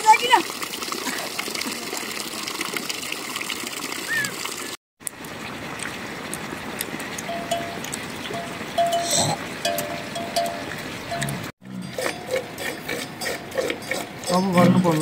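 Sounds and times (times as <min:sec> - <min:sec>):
running water rushing: 0:00.0 - 0:11.5.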